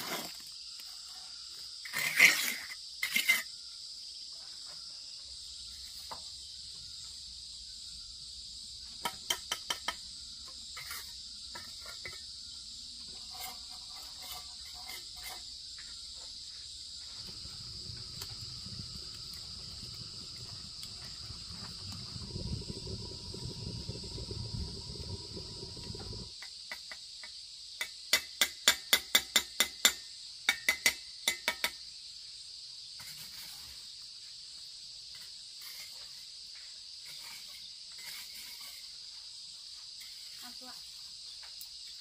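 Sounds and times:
insects chirring: 0.0s - 42.0s
low rumble: 17.4s - 26.3s
steel trowel knocking on bricks: 27.8s - 31.8s.

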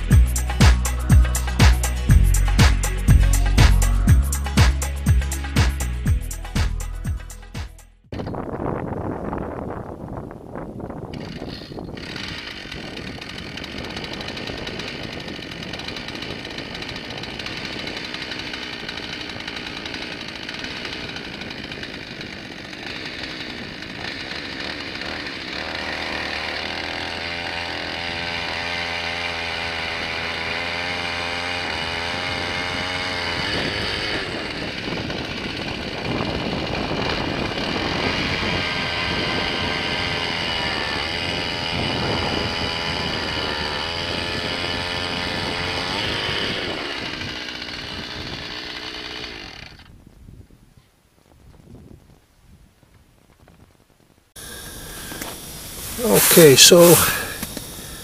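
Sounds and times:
ice auger engine drilling: 11.0s - 49.9s, 54.4s - 58.0s.

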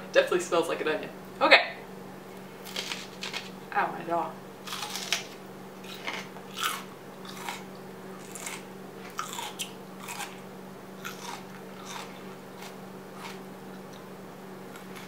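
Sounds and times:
person chewing crunchy onion: 2.6s - 3.5s, 4.6s - 15.0s.

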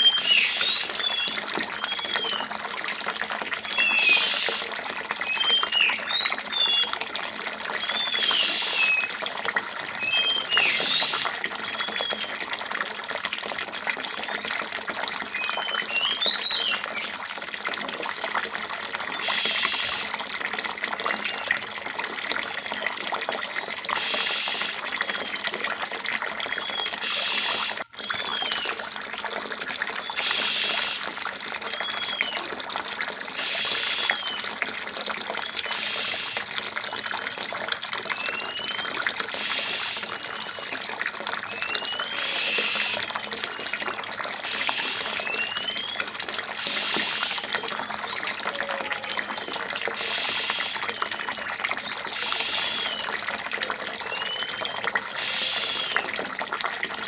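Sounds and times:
high bird chirps: 0.0s - 2.4s, 3.6s - 4.6s, 7.8s - 9.1s, 10.0s - 12.2s, 26.6s - 28.7s, 46.7s - 48.6s
running water: 0.0s - 57.0s.

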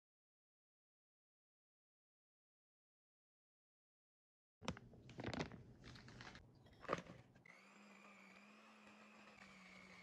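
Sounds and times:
electric hand mixer humming: 7.4s - 10.0s.

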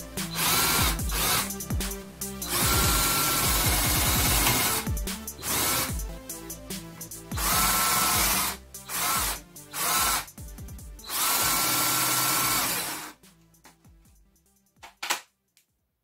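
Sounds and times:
cordless drill boring into wood: 0.3s - 1.5s, 2.5s - 4.8s, 5.4s - 5.9s, 7.4s - 10.3s, 11.0s - 13.2s.

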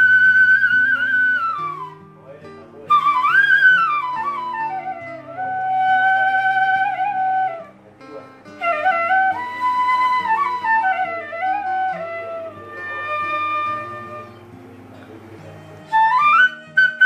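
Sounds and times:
bamboo flute melody: 0.0s - 7.8s, 8.4s - 17.0s.

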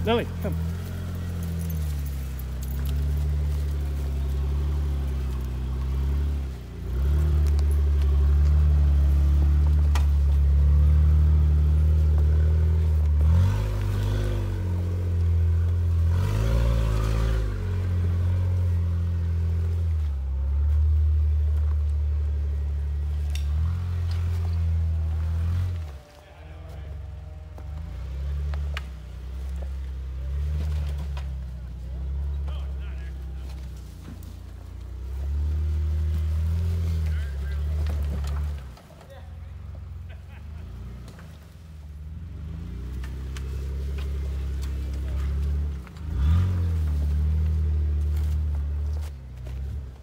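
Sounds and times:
engine running at low revs: 0.0s - 50.0s.

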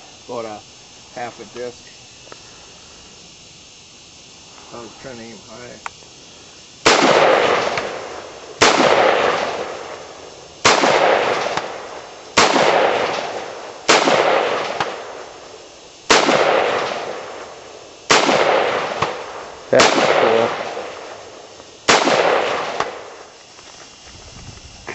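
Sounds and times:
gunshots with long echo: 6.8s - 15.4s, 16.1s - 23.2s.

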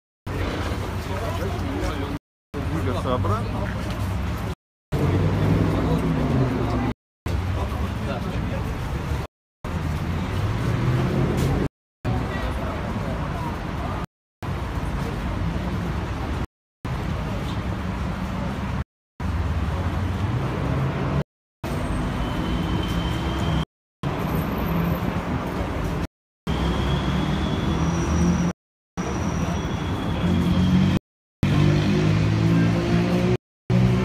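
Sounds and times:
traffic hum: 0.3s - 34.0s
crowd footsteps shuffling: 2.8s - 6.9s.

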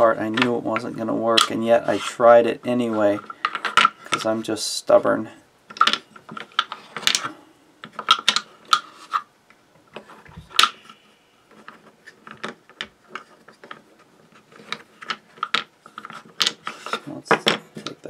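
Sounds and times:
wooden blocks clicking and knocking: 0.0s - 4.4s, 5.7s - 18.0s.

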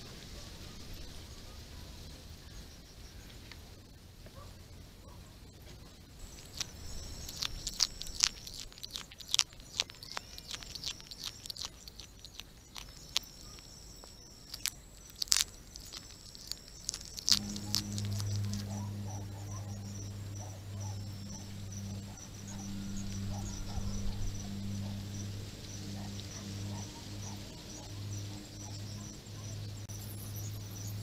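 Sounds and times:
animal chewing clicks: 6.2s - 29.2s.

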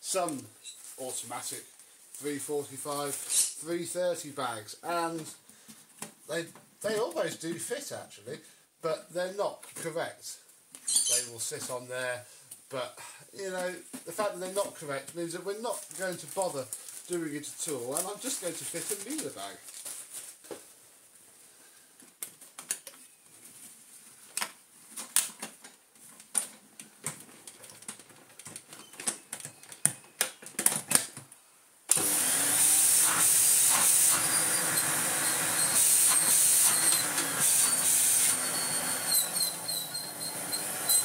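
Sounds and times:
vacuum motor whining: 31.9s - 41.0s.

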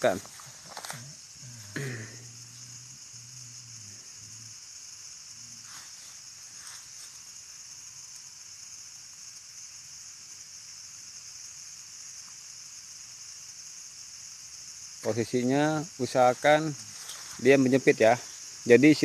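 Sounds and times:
high-pitched insect chorus: 0.0s - 19.0s.

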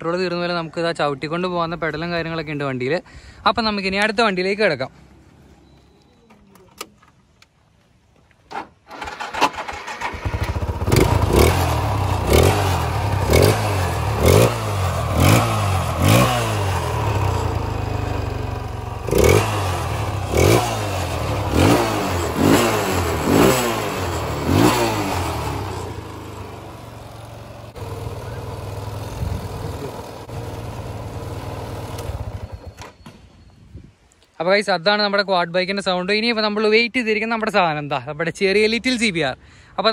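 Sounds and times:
quad bike engine revving and idling: 9.7s - 32.8s.

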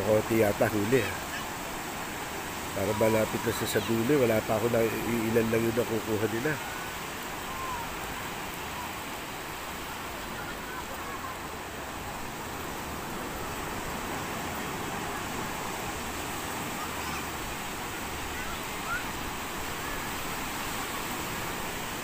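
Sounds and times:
surf breaking on sandy beach: 0.0s - 22.0s.

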